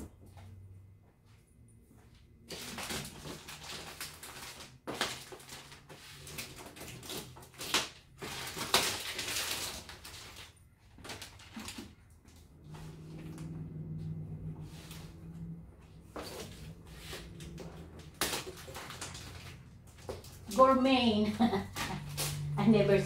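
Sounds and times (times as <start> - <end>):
scissors cutting plastic: 2.5 - 11.9, 18.0 - 20.3
plastic wrapping crinkling: 2.5 - 12.1, 16.2 - 20.5.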